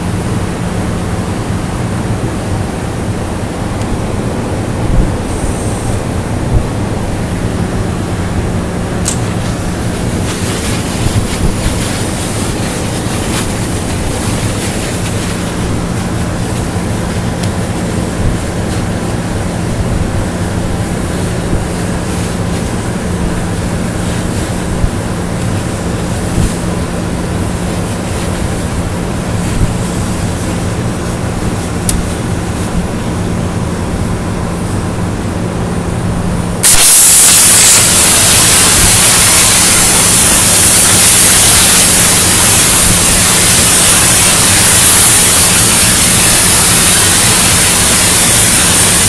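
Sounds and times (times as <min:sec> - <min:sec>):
plasma torch hissing: 0:36.6 - 0:49.0.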